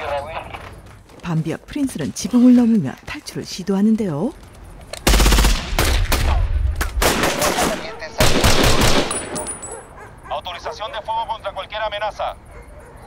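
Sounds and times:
automatic rifle fire: 0:05.0 - 0:09.4.

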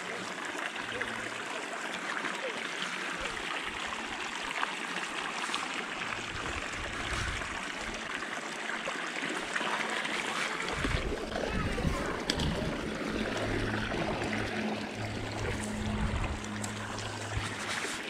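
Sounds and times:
stream water rushing and trickling: 0:00.0 - 0:18.0
low rumbling on microphone: 0:06.1 - 0:08.0, 0:10.7 - 0:18.0.

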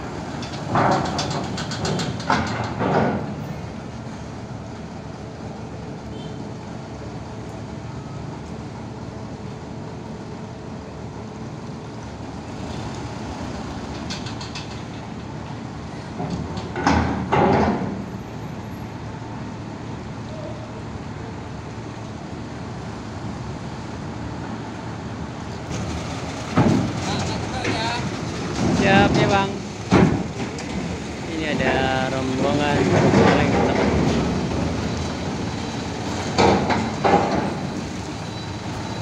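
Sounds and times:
diesel truck engine rumble: 0:00.0 - 0:39.0
loud clanks of steel ramp plates: 0:00.2 - 0:03.6, 0:13.9 - 0:15.2, 0:16.1 - 0:18.1, 0:25.6 - 0:30.9, 0:36.1 - 0:37.9.

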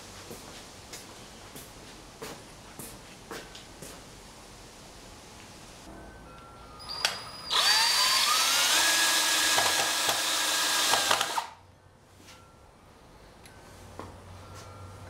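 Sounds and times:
cordless drill driving a screw: 0:07.0 - 0:11.6.

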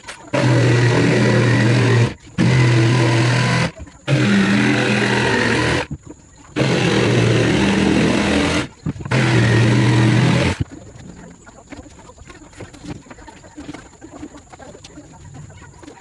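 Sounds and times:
electric jigsaw cutting plywood: 0:00.3 - 0:05.9, 0:06.6 - 0:10.6.

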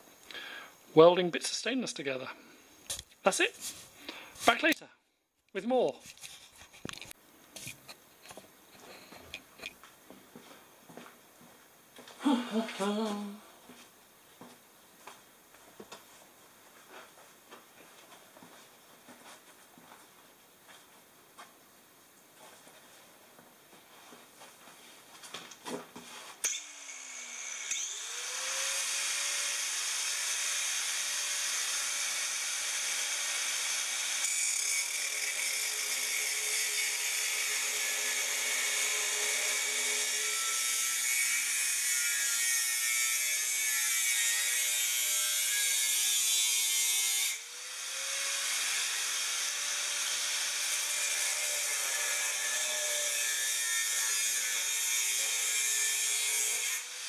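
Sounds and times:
angle grinder cutting metal pipe: 0:26.4 - 0:57.0.

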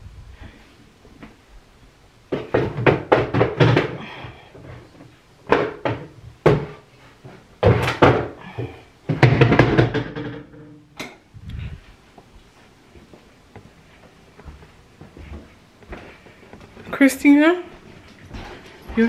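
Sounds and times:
knocks bumps and rustles: 0:02.3 - 0:10.8.

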